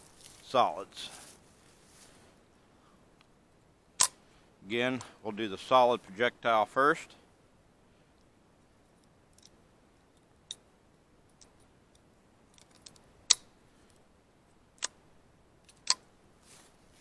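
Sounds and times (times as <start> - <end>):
metallic clicks of rifle loading: 9.0 - 10.6, 11.3 - 14.0.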